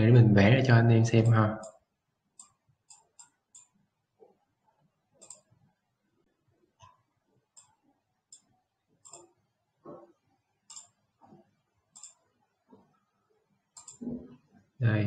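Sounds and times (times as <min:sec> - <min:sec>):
faint computer mouse clicks: 0:02.4 - 0:03.7, 0:05.2 - 0:05.5, 0:07.6 - 0:09.3, 0:10.7 - 0:11.0, 0:12.0 - 0:12.2, 0:13.8 - 0:14.1.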